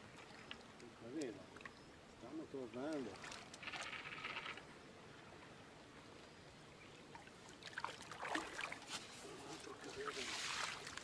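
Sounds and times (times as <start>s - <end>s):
short rasping rustle: 3.4s - 4.6s.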